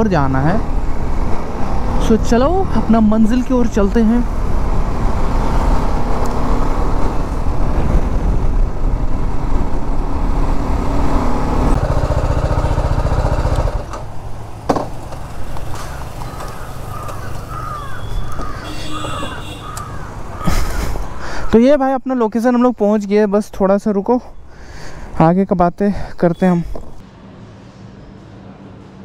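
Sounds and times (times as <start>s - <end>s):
motorcycle engine running: 11.0s - 14.2s
crows cawing: 15.6s - 21.6s.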